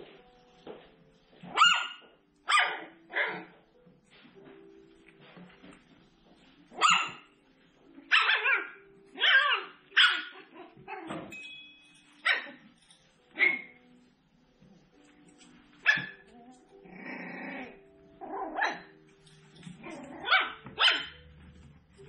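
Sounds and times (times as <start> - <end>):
puppies yipping and barking: 1.4 - 3.6, 6.7 - 7.4, 8.0 - 11.4, 12.0 - 13.9, 15.8 - 21.6.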